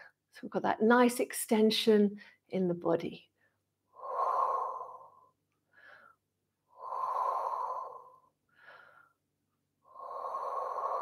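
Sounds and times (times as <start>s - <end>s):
woman breathing: 3.4s - 11.0s.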